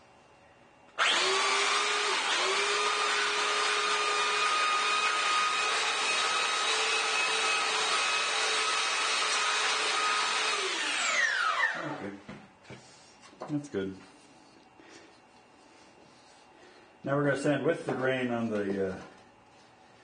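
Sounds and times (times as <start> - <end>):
belt sander sanding wood: 1.0 - 12.0.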